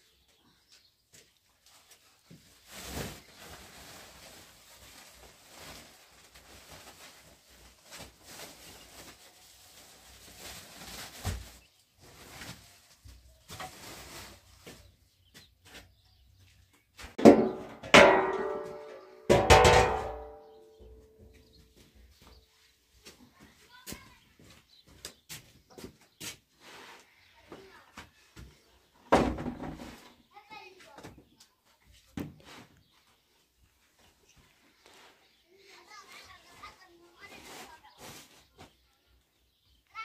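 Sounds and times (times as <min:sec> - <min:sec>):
metal baking trays clanging: 0:17.2 - 0:20.5.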